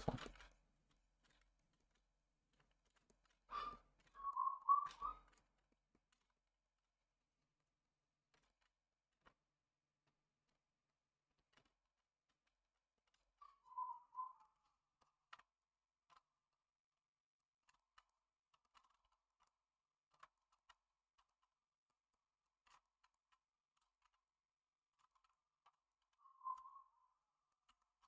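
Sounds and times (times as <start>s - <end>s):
stylus tapping on graphics tablet: 0.0s - 0.4s.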